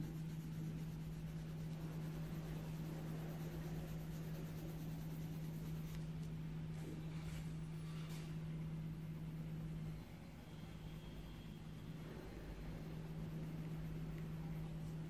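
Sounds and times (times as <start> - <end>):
pencil scratching on paper: 0.0 - 6.1
low hum: 0.0 - 15.0.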